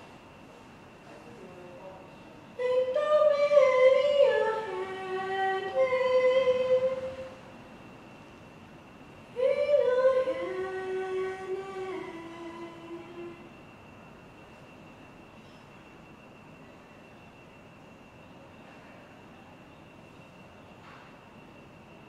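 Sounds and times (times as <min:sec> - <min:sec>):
woman singing solo: 0:02.6 - 0:07.4.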